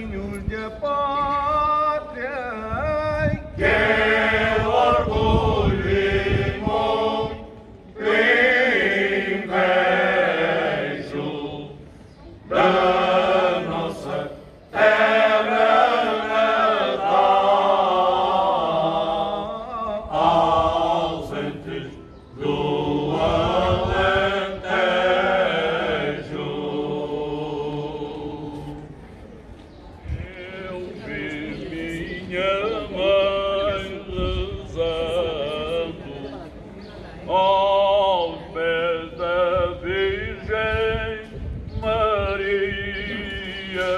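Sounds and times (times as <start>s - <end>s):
male choir singing unaccompanied: 0.0s - 29.0s, 30.0s - 43.9s
single voice singing: 37.4s - 43.9s.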